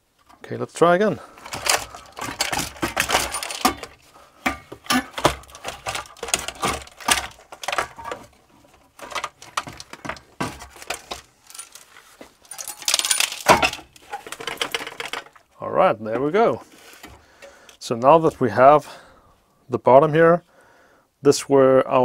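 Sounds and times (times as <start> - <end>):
circuit board parts clicking and rattling: 1.4 - 15.4.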